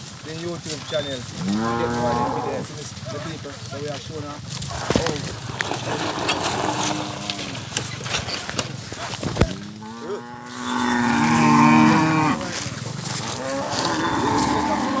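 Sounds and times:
cow mooing: 1.4s - 2.7s, 6.3s - 7.6s, 9.6s - 15.0s.

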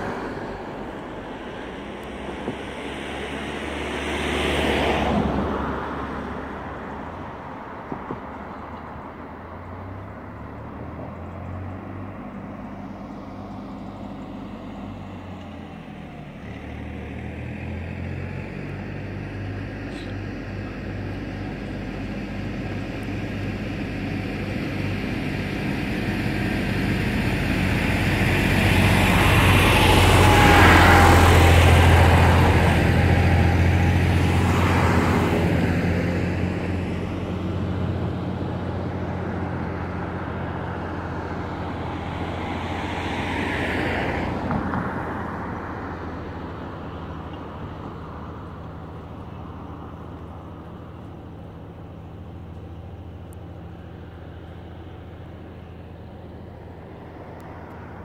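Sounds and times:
car driving past: 0.0s - 58.0s
low traffic hum: 0.0s - 58.0s
fainter vehicle passing: 9.8s - 46.7s.

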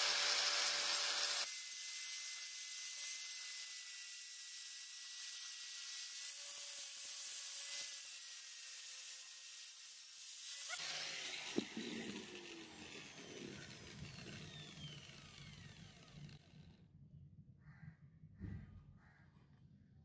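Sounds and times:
angle grinder grinding steel: 0.0s - 16.6s
motor whine: 10.8s - 16.7s.

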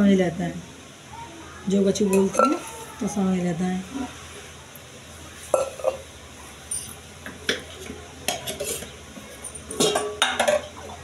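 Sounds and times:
steel dishes clinking: 5.5s - 6.0s, 6.7s - 10.8s.

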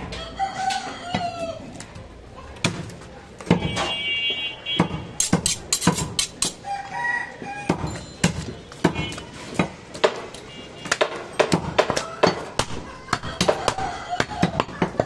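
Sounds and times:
chickens calling: 0.0s - 2.0s, 6.4s - 8.1s, 11.7s - 15.0s
knife honed on sharpening steel: 5.2s - 6.6s.

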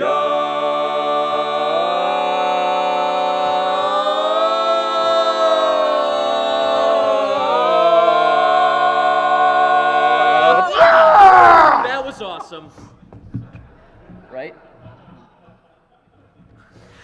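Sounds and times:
male quartet singing a cappella: 0.0s - 11.8s.

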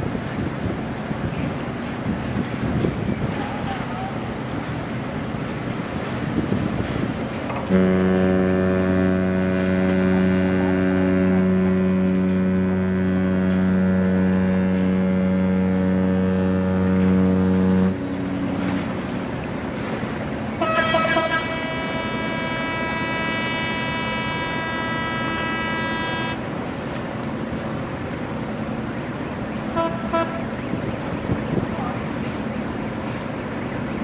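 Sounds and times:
low rumble of engines and water: 0.0s - 34.0s
deep ship's horn: 6.0s - 32.4s
higher-pitched horn blasts: 7.7s - 19.0s, 20.6s - 26.5s.

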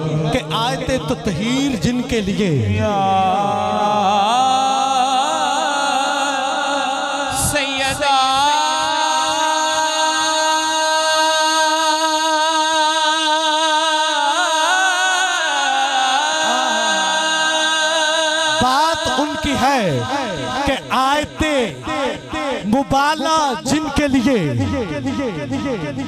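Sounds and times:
man singing a chant: 0.0s - 26.0s
low rhythmic pulse: 20.1s - 26.0s.

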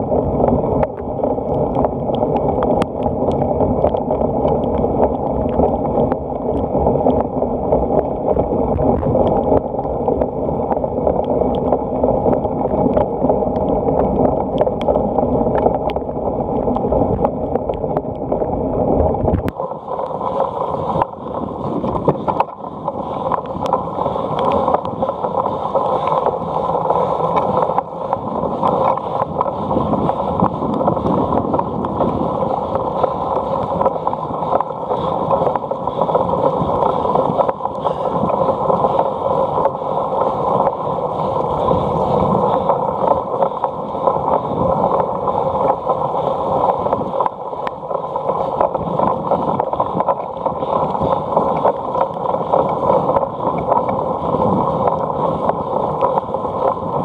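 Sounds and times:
wind rush: 0.0s - 57.0s.

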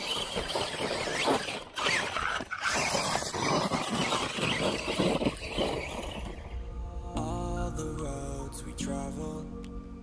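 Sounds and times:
rc truck electric motor revving: 0.0s - 6.6s.

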